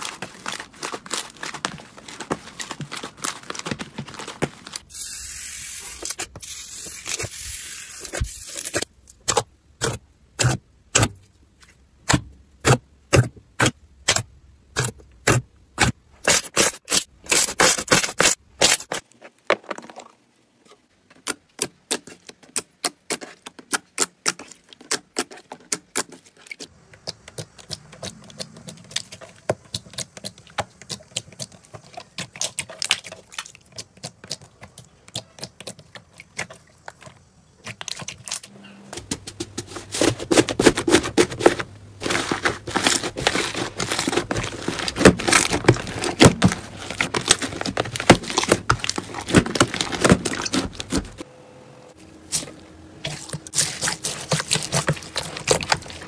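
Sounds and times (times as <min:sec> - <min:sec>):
wet slime squishing and crackling: 0:00.0 - 0:04.9, 0:21.2 - 0:38.5, 0:39.9 - 0:51.2, 0:52.3 - 0:56.0.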